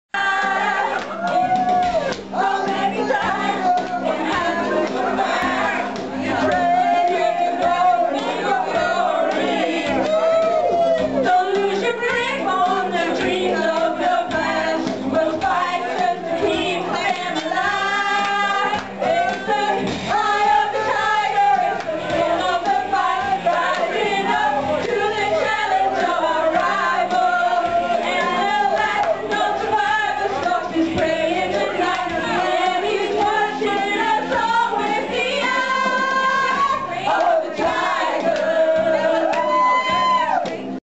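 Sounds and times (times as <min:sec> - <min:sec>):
group singing karaoke: 0:00.2 - 0:40.8
karaoke music: 0:00.2 - 0:40.8.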